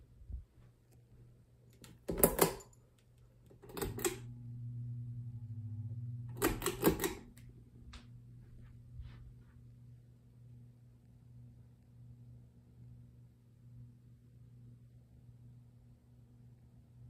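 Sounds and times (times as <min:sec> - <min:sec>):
pull-chain switch clicking: 0:01.8 - 0:02.8, 0:03.5 - 0:04.2, 0:06.3 - 0:07.4
fan motor humming: 0:03.4 - 0:09.4.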